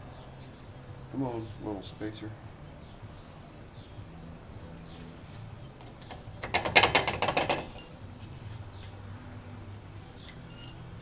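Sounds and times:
metal tools rattling: 0:05.8 - 0:08.0, 0:10.2 - 0:11.0.

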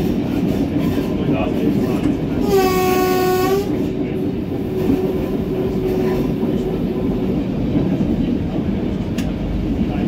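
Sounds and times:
diesel railbus engine running: 0:00.0 - 0:10.0
train horn blast: 0:02.4 - 0:03.9.

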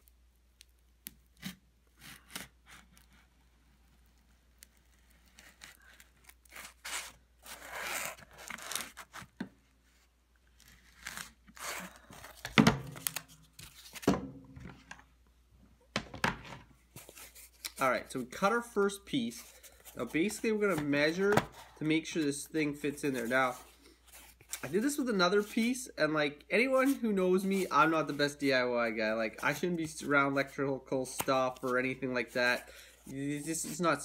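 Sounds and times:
scissors cutting foam: 0:00.6 - 0:09.3.

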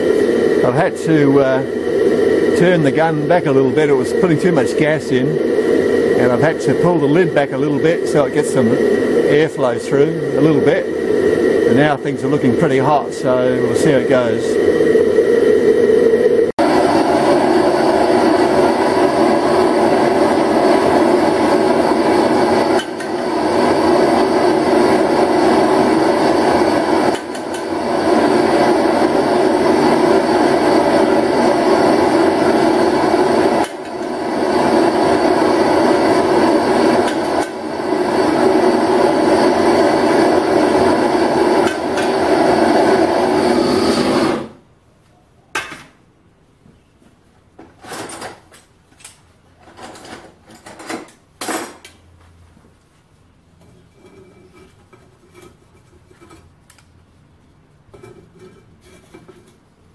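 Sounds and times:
gas torch burner firing: 0:00.0 - 0:44.7.

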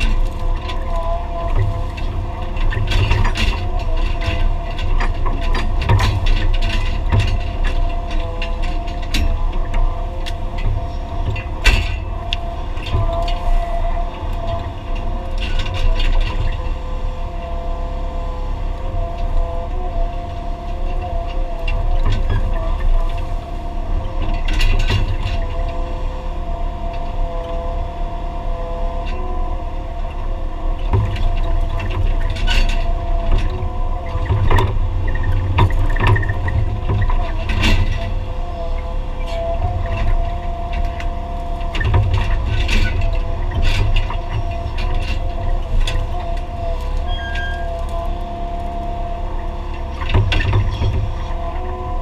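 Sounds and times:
knocks and rattles: 0:00.0 - 0:16.8, 0:38.9 - 0:51.8
excavator engine drone: 0:00.0 - 0:52.0
hydraulics whine: 0:00.0 - 0:52.0.

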